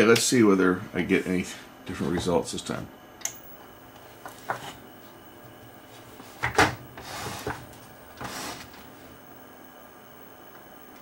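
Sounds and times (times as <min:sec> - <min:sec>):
television switch clicks: 0:03.2 - 0:03.4.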